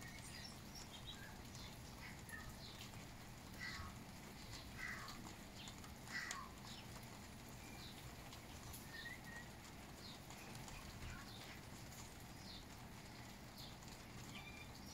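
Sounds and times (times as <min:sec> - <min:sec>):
bird calling: 0:00.0 - 0:11.6.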